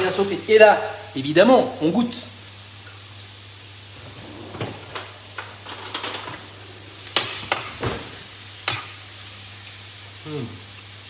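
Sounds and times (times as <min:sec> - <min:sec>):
vegetables sizzling in oil: 0:00.0 - 0:04.0, 0:05.0 - 0:11.0
steady low hum: 0:03.8 - 0:08.6.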